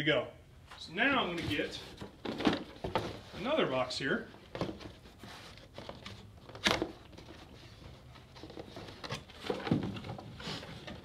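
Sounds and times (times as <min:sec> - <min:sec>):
rummaging through cardboard box: 0:01.4 - 0:03.6, 0:04.4 - 0:11.0.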